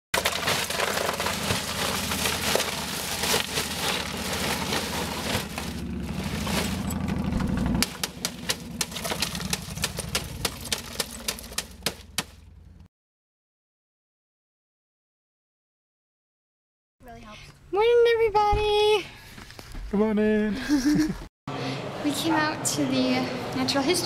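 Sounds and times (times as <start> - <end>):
ice cubes clattering into cooler: 0.2 - 7.2, 7.9 - 11.8.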